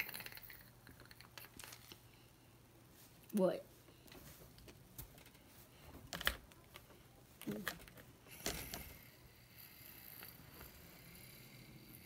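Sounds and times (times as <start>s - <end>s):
toys being handled: 0.0s - 2.1s, 4.0s - 9.1s.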